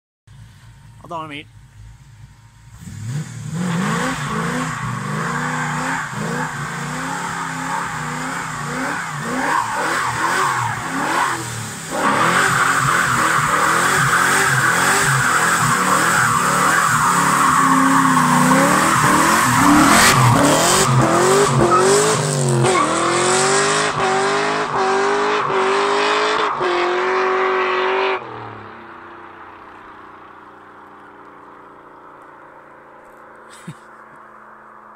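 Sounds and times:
car engine revving: 0:01.6 - 0:34.7
tyres squealing: 0:12.1 - 0:23.0.

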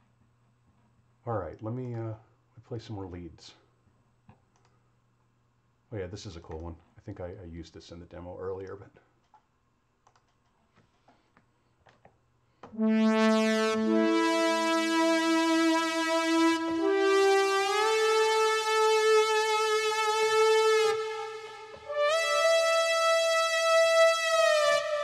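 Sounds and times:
faint clicks: 0:04.3 - 0:04.8, 0:08.6 - 0:12.7
synth brass chords: 0:12.7 - 0:25.0.

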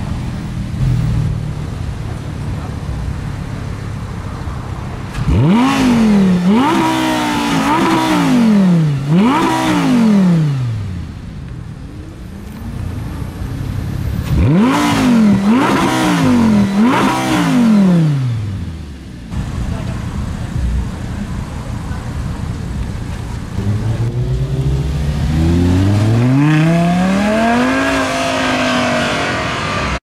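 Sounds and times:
car engine revving: 0:05.1 - 0:11.1, 0:12.1 - 0:21.9, 0:22.6 - 0:30.0.

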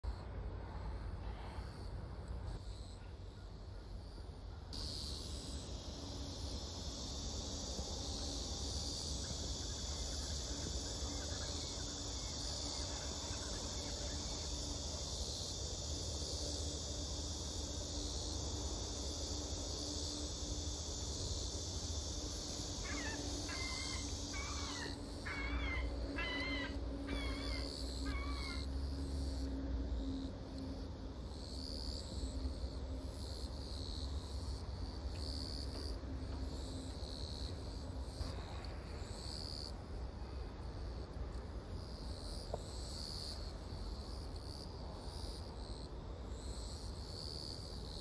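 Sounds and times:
cicada chorus buzzing: 0:03.9 - 0:48.0.

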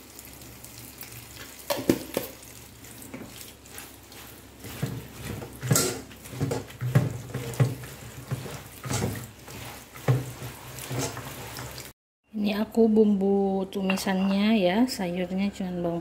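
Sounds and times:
tap water running into a bowl: 0:00.0 - 0:11.9
water sloshing and splashing: 0:00.2 - 0:12.0.

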